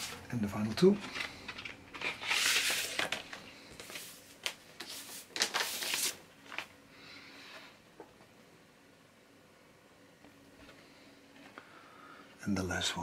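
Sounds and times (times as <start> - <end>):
paper sleeves rustling: 0.0 - 6.7.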